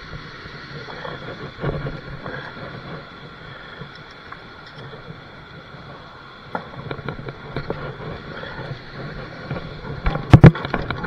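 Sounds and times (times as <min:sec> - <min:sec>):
bicycle rattling and scraping: 0:00.0 - 0:11.0.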